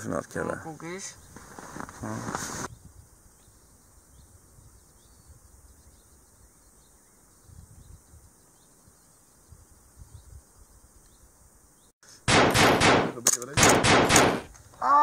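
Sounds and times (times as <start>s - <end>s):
bird chirps: 2.7s - 11.9s.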